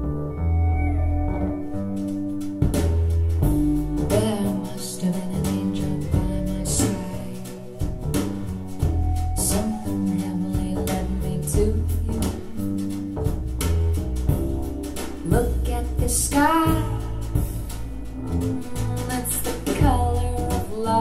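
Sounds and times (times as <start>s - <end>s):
song with bass guitar and beat: 0.0s - 21.0s
person singing: 4.1s - 7.9s, 9.4s - 12.7s, 15.2s - 17.5s, 18.4s - 21.0s.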